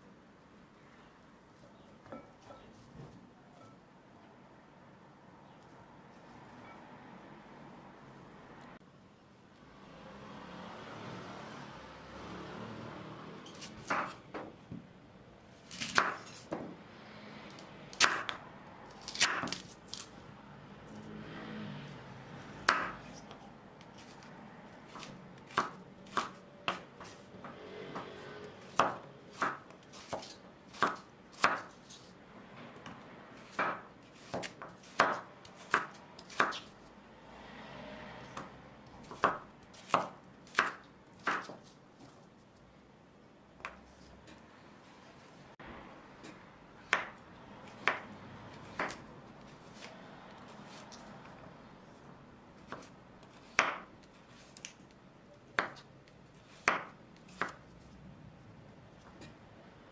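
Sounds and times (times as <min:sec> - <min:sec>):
knife slicing radishes: 0:13.5 - 0:14.2, 0:15.6 - 0:16.6, 0:17.9 - 0:20.2, 0:24.9 - 0:27.3, 0:28.6 - 0:32.1, 0:33.4 - 0:36.8, 0:38.3 - 0:42.1, 0:46.9 - 0:51.4, 0:52.6 - 0:54.8, 0:55.5 - 0:57.7.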